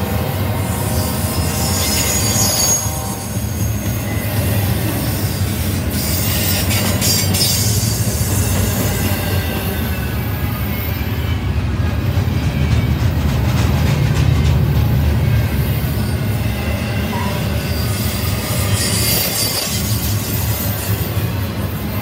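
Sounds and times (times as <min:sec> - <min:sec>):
train wheels rumbling on rail: 0:00.0 - 0:22.0
wheel squeal: 0:00.9 - 0:11.5, 0:16.0 - 0:21.4.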